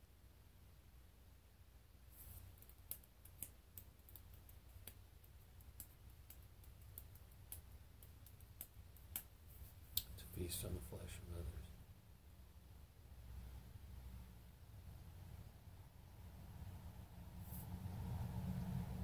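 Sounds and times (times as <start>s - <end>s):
low room hum: 0.0s - 19.0s
small clicks from fidgeting hands: 2.2s - 10.3s.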